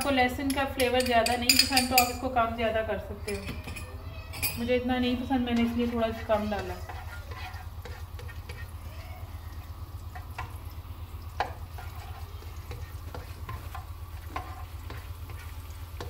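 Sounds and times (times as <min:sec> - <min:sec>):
garlic sizzling in oil: 0:05.0 - 0:16.0
spatula scraping and tapping pan: 0:05.4 - 0:08.8, 0:10.1 - 0:10.6, 0:11.4 - 0:16.0.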